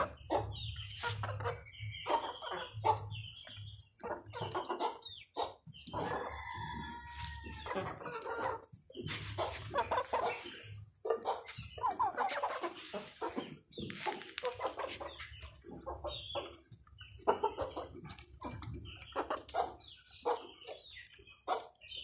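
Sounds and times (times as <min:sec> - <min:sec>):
chickens clucking: 0:00.0 - 0:22.0.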